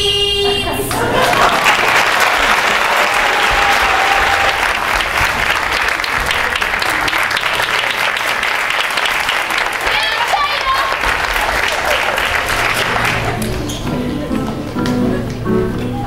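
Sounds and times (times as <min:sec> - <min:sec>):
audience applauding: 0:00.9 - 0:13.7.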